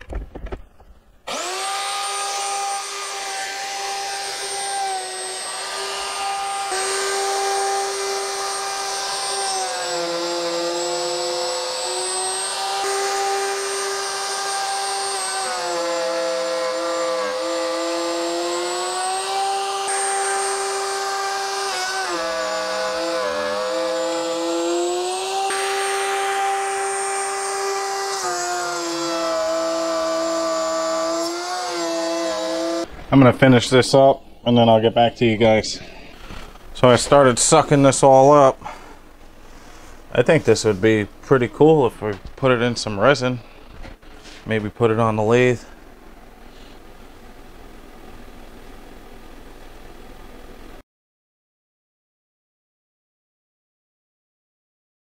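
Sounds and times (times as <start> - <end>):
router motor whining: 1.2 - 33.2.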